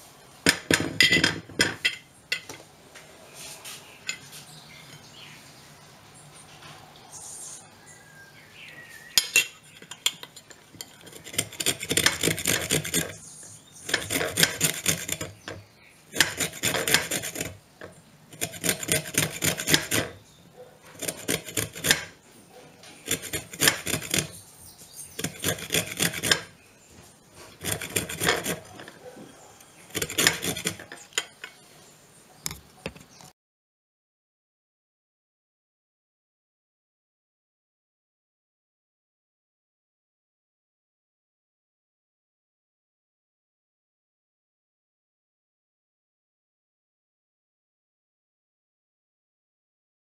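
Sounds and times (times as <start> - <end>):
grater rasping lime rind: 9.8 - 20.2, 20.9 - 22.2, 23.0 - 24.4, 25.1 - 26.6, 27.4 - 29.1, 29.9 - 31.2.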